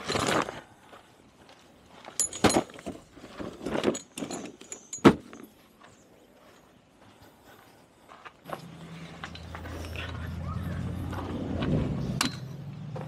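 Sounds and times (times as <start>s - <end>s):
metal camp gear clinking: 2.0s - 6.0s, 8.5s - 10.6s.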